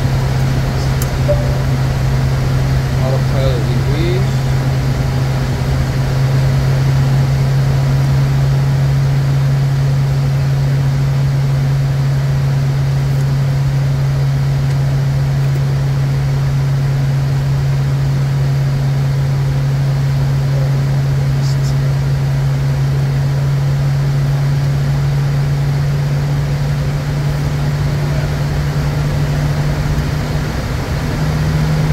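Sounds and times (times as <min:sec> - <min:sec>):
jet engine hum: 0:00.0 - 0:09.1, 0:20.6 - 0:31.9.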